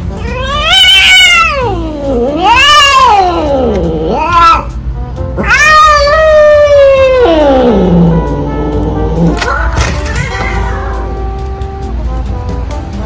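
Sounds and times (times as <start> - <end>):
cat yowling: 0.2 - 4.8, 5.4 - 9.4.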